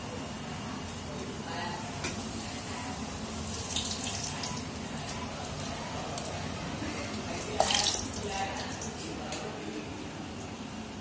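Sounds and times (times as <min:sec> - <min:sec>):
deep-frying sizzle: 0:00.0 - 0:11.0.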